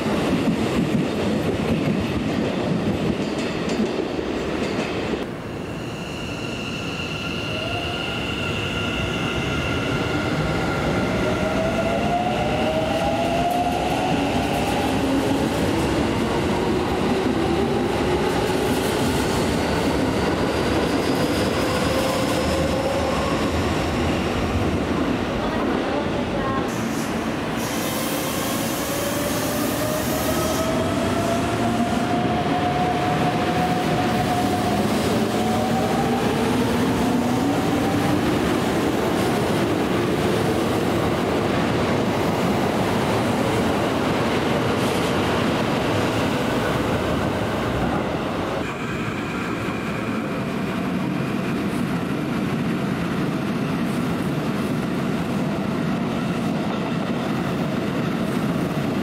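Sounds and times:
hiss: 26.8s - 30.5s.

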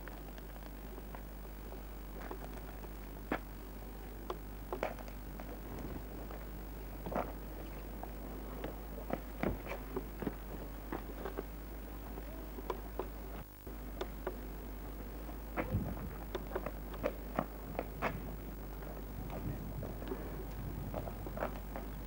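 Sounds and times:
steady low hum: 0.0s - 22.0s
footsteps on gravel: 15.6s - 22.0s.

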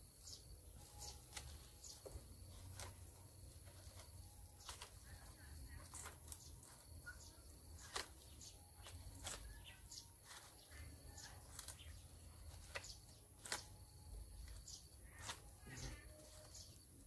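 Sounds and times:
coconuts clicking and snapping: 11.3s - 14.6s.

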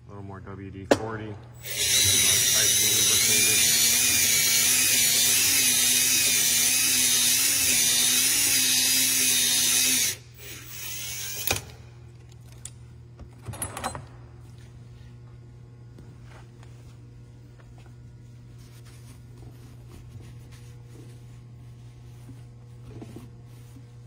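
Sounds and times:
power drill whining: 1.6s - 11.7s.

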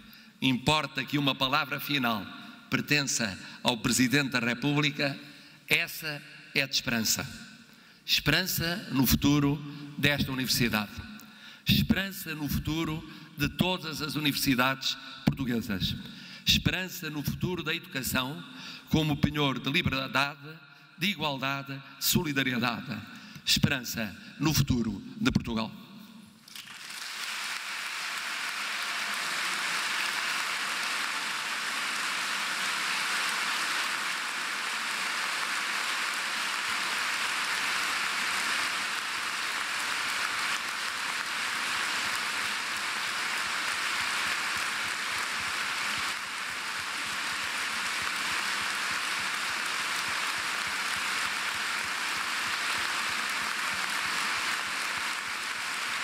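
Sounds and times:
large audience applauding: 26.4s - 56.0s.

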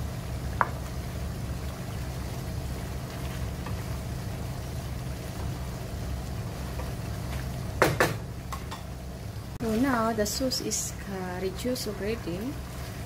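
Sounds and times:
sauce simmering in a wok: 0.0s - 13.0s
wooden spatula stirring: 0.5s - 7.8s
sharp knocks: 7.8s - 8.2s.

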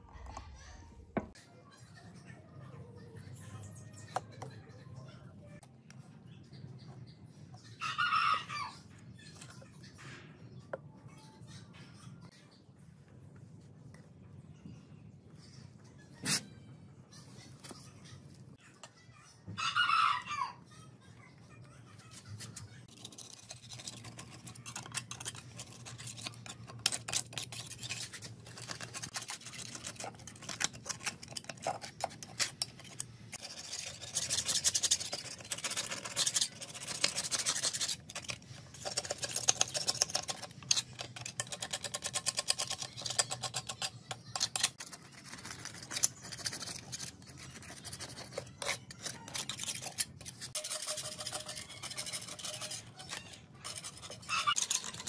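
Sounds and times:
paint scraper scraping metal: 22.9s - 55.0s.

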